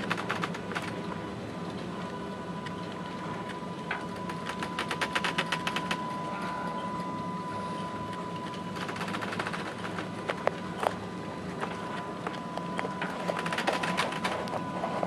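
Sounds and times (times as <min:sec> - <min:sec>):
rapid mechanical clicking: 0:00.0 - 0:01.2, 0:03.4 - 0:06.1, 0:08.5 - 0:10.9, 0:12.8 - 0:14.6
ship machinery hum: 0:00.0 - 0:15.0
thin high tone: 0:03.9 - 0:09.5.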